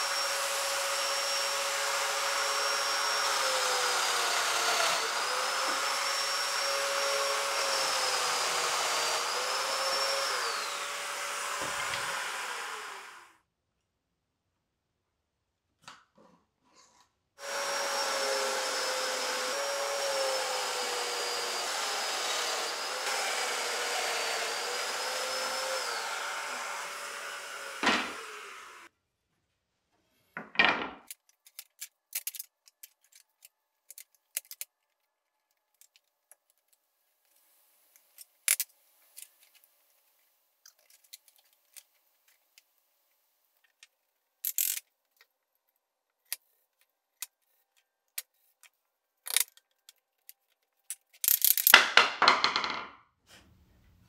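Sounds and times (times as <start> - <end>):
wooden boards knocking and clicking: 51.7 - 53.0.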